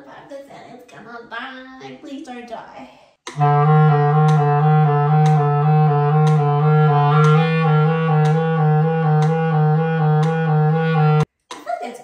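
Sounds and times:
clarinet playing quick notes: 3.3 - 11.3.

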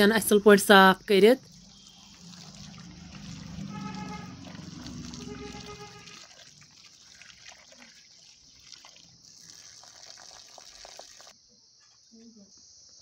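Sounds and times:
water trickling and splashing: 1.4 - 11.4.

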